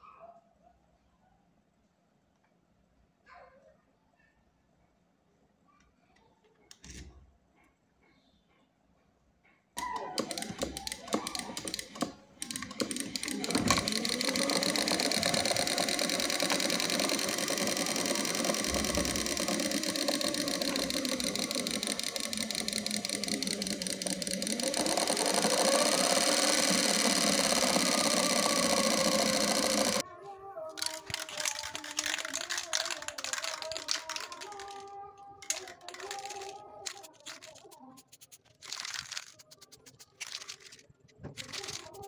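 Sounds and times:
model engine buzzing: 0:10.1 - 0:30.0, 0:30.8 - 0:40.8.

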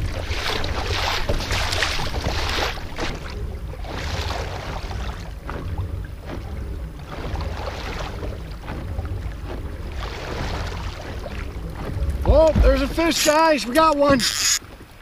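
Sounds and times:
waves slapping against kayak hull: 0:00.0 - 0:15.0
wind rumble on microphone: 0:00.0 - 0:15.0.

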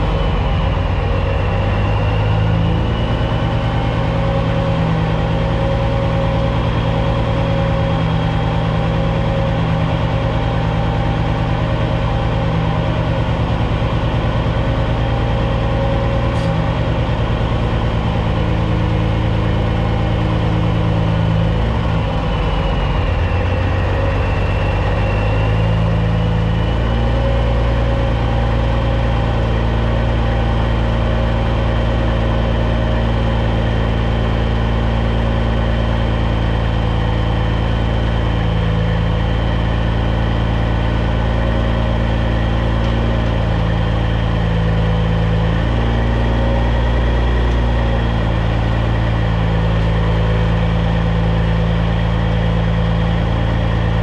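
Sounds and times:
diesel truck engine idling: 0:00.0 - 0:54.0.

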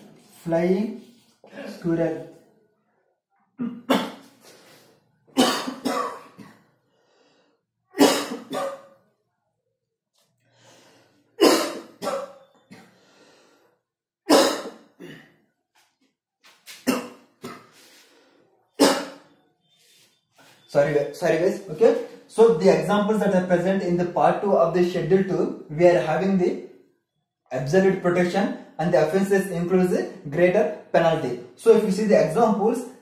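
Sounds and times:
man coughing: 0:03.6 - 0:04.3, 0:05.4 - 0:06.7, 0:08.0 - 0:08.9, 0:11.4 - 0:13.0, 0:14.3 - 0:15.4.

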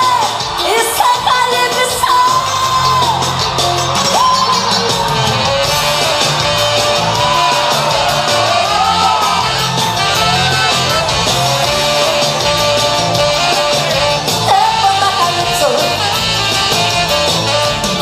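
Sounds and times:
pop song with sung vocals: 0:00.0 - 0:03.2.

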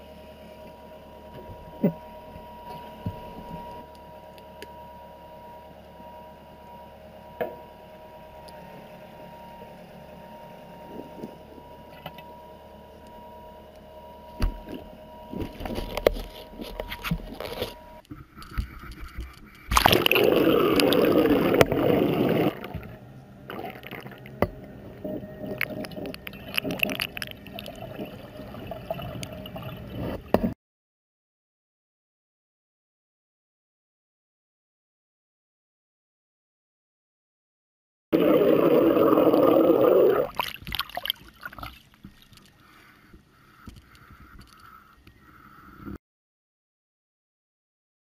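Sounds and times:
steady hum: 0:00.0 - 0:30.6, 0:38.2 - 0:40.6
water sloshing: 0:38.2 - 0:42.6.

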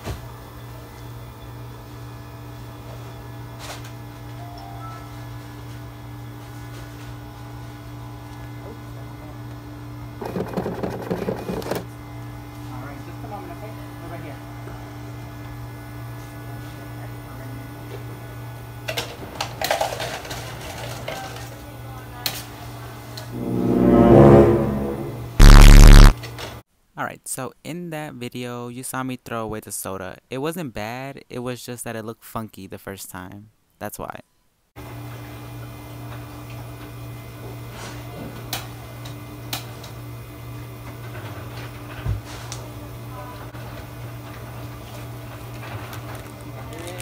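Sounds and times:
low machine hum: 0:23.4 - 0:26.1.

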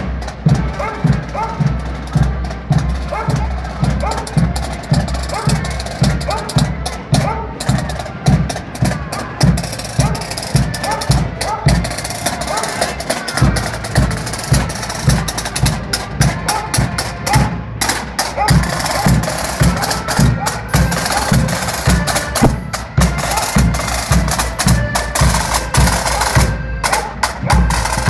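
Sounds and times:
bass drum beat: 0:00.0 - 0:28.0
marching band music: 0:00.0 - 0:28.0
snare drum strikes: 0:16.4 - 0:28.0.

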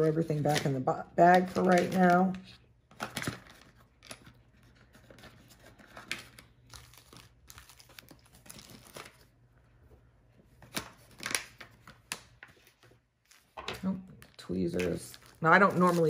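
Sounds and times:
plastic bag crinkling: 0:11.0 - 0:16.0.

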